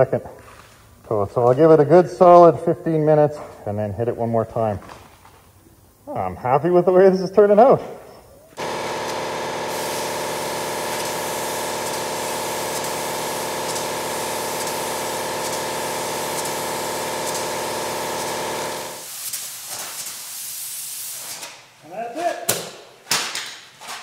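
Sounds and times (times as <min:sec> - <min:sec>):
paint spray gun hissing: 0:08.6 - 0:21.4.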